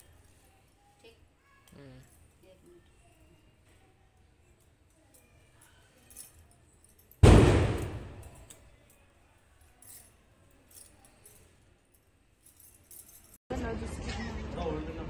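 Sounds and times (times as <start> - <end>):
faint clinks: 0.0 - 7.2, 7.8 - 13.4
loud metallic clang: 7.2 - 8.4.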